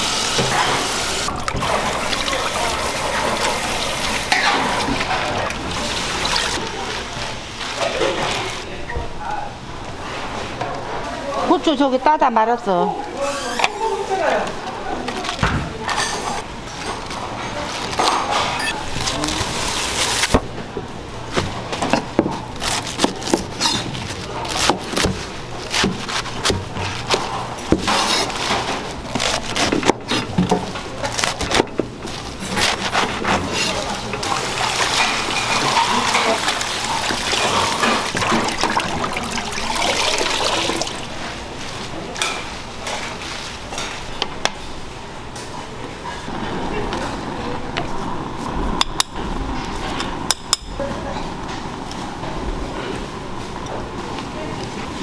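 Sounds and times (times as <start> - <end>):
running water: 0.0 - 8.6, 33.2 - 41.8
background chatter: 0.0 - 55.0
clatter of dishes and utensils: 29.7 - 40.9.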